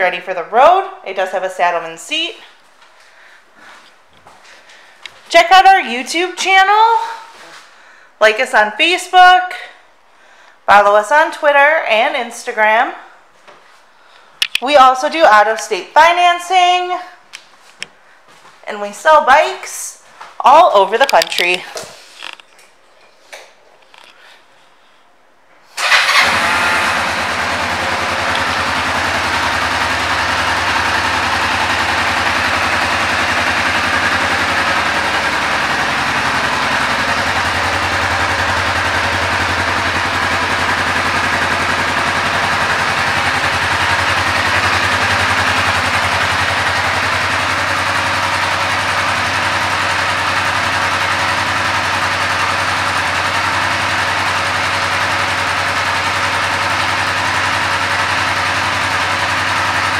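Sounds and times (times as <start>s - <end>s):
motorcycle engine idling: 25.8s - 59.9s.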